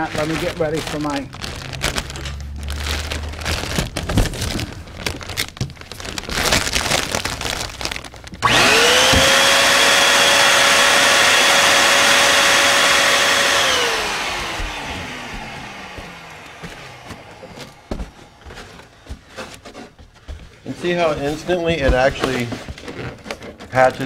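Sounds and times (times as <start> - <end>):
foil balloon crinkling: 0.0 - 10.0, 14.1 - 24.0
electric balloon inflator motor: 8.4 - 19.2.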